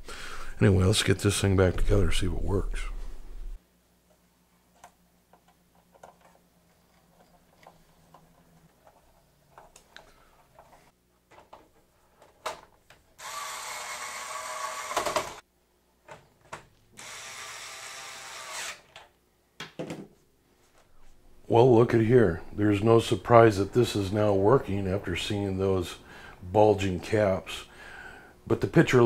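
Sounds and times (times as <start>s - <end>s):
electric screwdriver driving screws: 13.2s - 15.4s, 17.0s - 18.9s.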